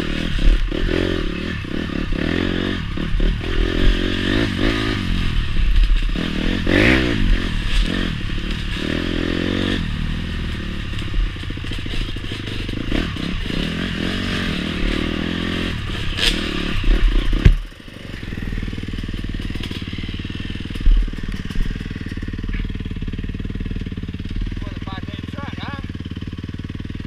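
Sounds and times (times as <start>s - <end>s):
dirt bike engine revving: 0.0s - 27.0s.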